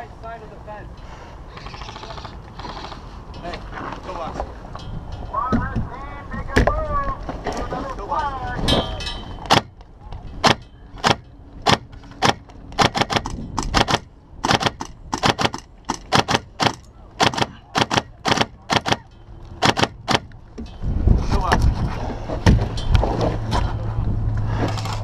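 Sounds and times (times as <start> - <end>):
airsoft gunfire: 10.4 - 19.0, 19.6 - 20.3.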